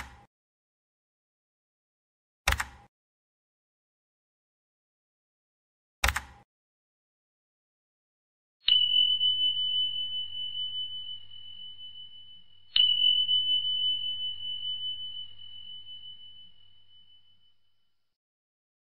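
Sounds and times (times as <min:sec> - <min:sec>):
high-pitched bell ding: 0:08.7 - 0:17.7.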